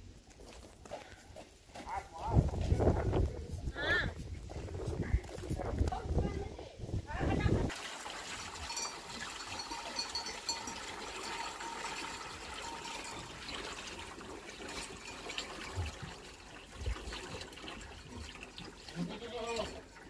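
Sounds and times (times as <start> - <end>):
water pouring into metal trough: 7.7 - 20.0.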